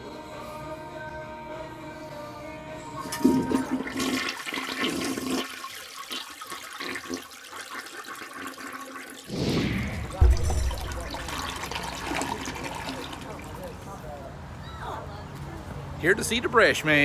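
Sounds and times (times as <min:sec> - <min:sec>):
toilet flushing: 0:03.1 - 0:09.3, 0:10.8 - 0:13.7.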